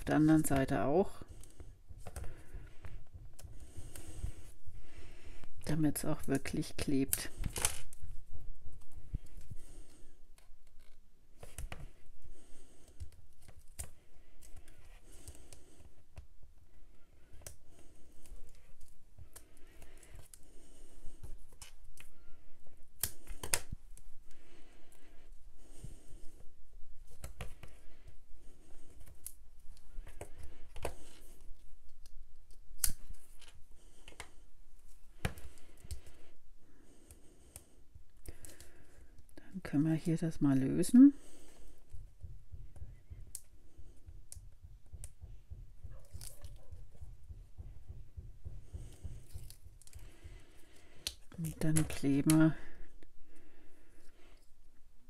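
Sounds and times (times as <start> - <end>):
soft rustling of tape and card: 0.0 - 55.0
scissors snipping tape: 31.9 - 33.5
paper and tape rustling: 41.3 - 52.5.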